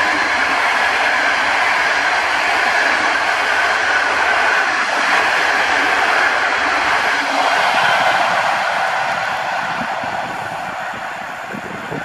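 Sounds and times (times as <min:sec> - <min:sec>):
train wheels rushing on rails: 0:00.0 - 0:12.0.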